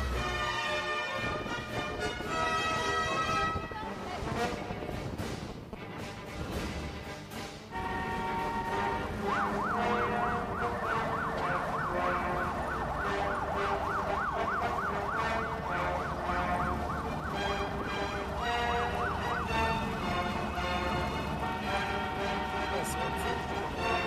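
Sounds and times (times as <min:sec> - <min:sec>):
vehicle siren yelping: 0:07.8 - 0:24.0.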